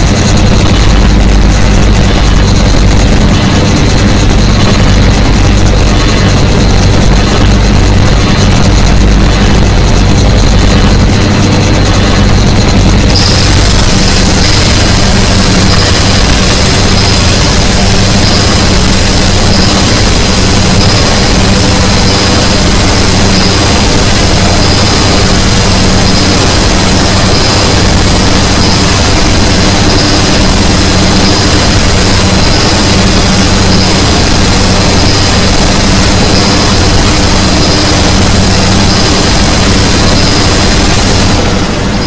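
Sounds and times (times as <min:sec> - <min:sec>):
harsh noise wall: 0:00.0 - 0:42.0
low hum: 0:00.0 - 0:42.0
high whistling tones: 0:13.1 - 0:42.0.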